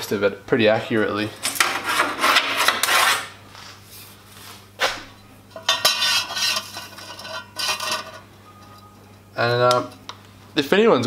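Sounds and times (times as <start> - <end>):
metal scraping and rubbing: 1.4 - 4.2, 4.8 - 8.8.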